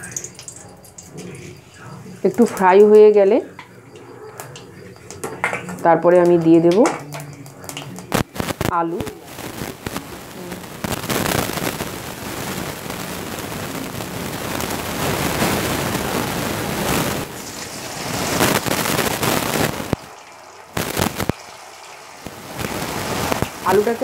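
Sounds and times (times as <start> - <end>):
spices sizzling in hot oil: 0.0 - 1.6, 2.2 - 24.0.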